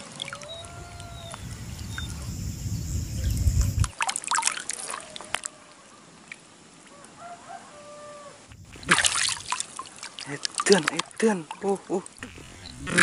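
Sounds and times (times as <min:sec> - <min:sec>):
splashes and drips: 0:03.4 - 0:05.5, 0:08.5 - 0:13.0
water sloshing and trickling: 0:03.6 - 0:05.5, 0:08.5 - 0:13.0.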